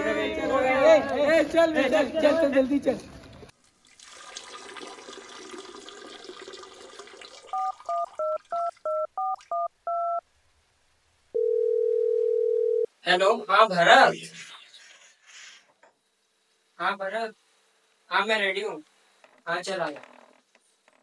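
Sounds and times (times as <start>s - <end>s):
phone ringing tone: 7.5s - 10.2s, 11.4s - 12.9s
phone keypad touch-tones: 7.6s - 10.2s.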